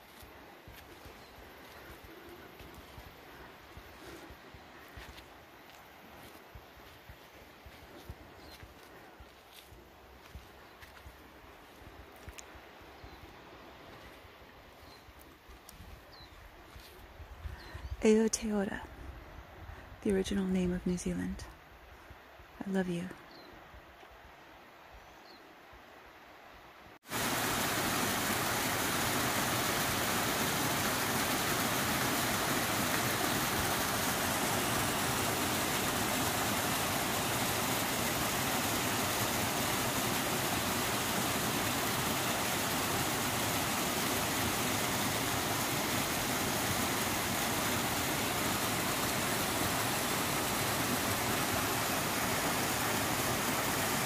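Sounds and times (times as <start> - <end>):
waterfall over rocks: 27.0 - 54.0.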